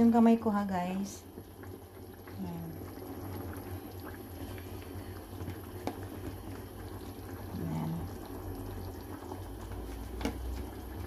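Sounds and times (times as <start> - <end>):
sauce bubbling in a frying pan: 0.0 - 11.0.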